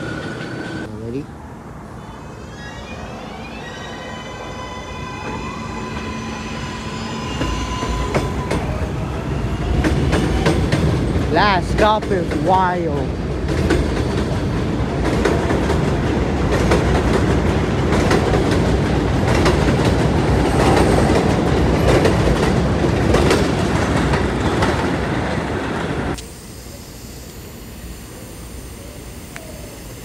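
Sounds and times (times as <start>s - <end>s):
subway train rumbling: 0.0s - 26.2s.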